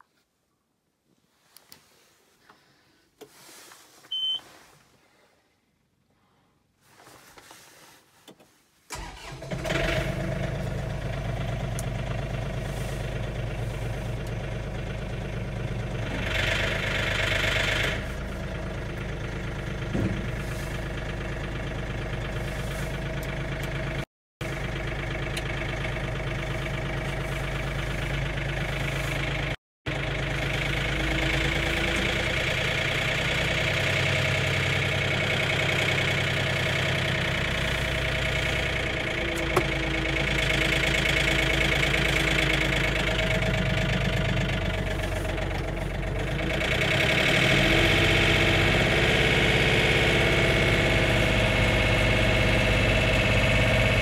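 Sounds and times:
short warning beep: 0:04.1 - 0:04.4
tractor engine cranking and idling: 0:06.8 - 0:54.0.

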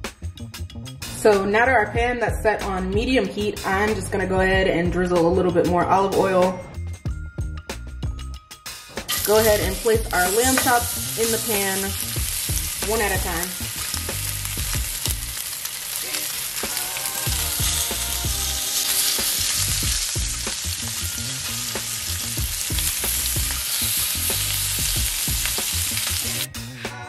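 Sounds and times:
meat sizzling in a frying pan: 0:09.1 - 0:26.5.

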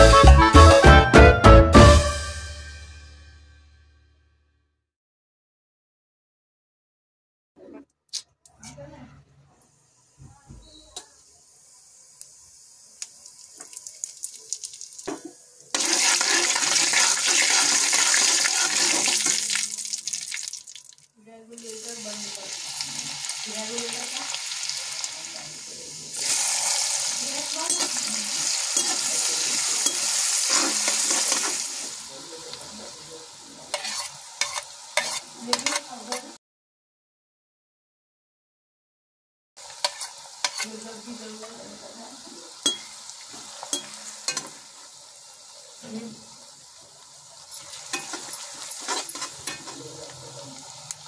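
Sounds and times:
food sizzling in hot oil: 0:10.1 - 0:36.4, 0:39.6 - 0:51.0
metal spoon clicking against pan: 0:33.8 - 0:36.2.

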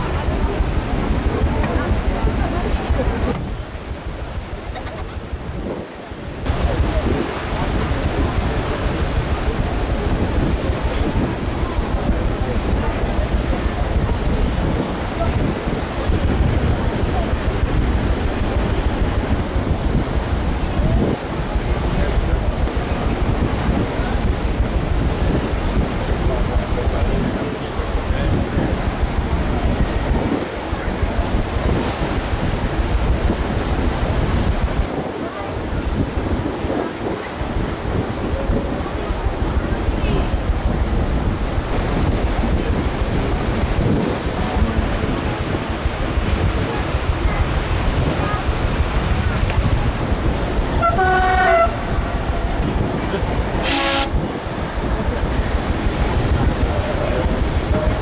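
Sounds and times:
rush of water: 0:00.0 - 0:58.0
wind buffeting microphone: 0:00.0 - 0:58.0
horn toot: 0:50.8 - 0:52.5, 0:53.5 - 0:54.3.

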